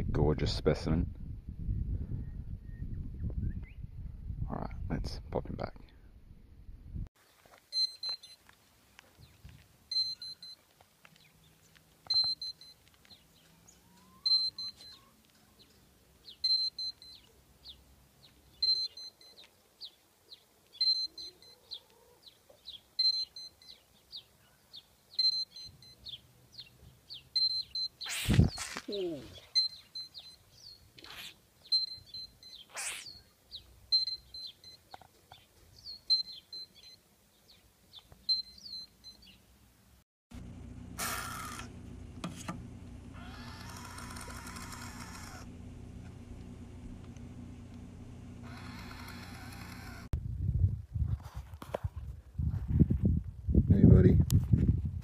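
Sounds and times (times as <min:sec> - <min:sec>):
gecko chirps: 0:09.9 - 0:10.6, 0:13.8 - 0:15.2, 0:18.6 - 0:19.4, 0:27.4 - 0:33.3, 0:43.2 - 0:45.4, 0:48.4 - 0:50.1.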